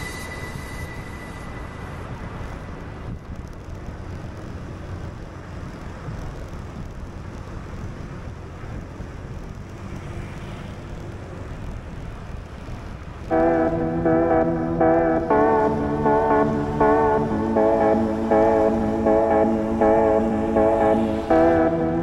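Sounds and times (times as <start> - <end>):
wind rumbling on microphone: 0.0 - 9.8
city road traffic: 0.0 - 22.0.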